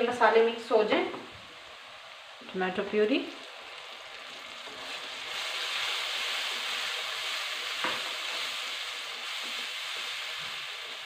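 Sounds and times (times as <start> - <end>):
spatula tap: 7.8 - 8.1.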